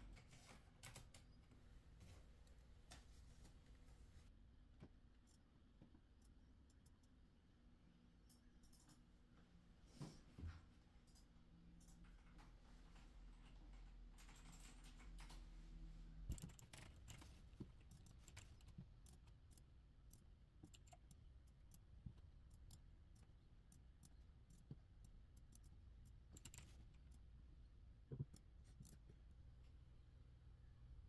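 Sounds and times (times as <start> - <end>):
mouse and keyboard clicks: 16.3 - 27.2.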